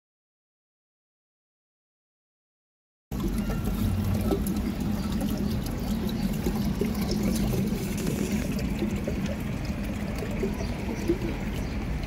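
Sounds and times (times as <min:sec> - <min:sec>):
water trickling into basin: 0:03.1 - 0:12.0.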